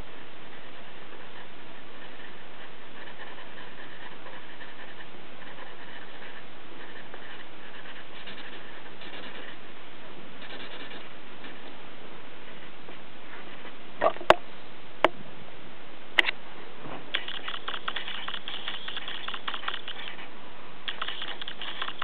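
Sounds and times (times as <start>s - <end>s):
steady hiss: 0.0s - 22.0s
pen scratching on paper: 0.6s - 9.6s, 10.4s - 11.7s, 17.2s - 20.3s, 20.9s - 22.0s
sharp clicks: 17.1s - 20.2s, 20.8s - 22.0s.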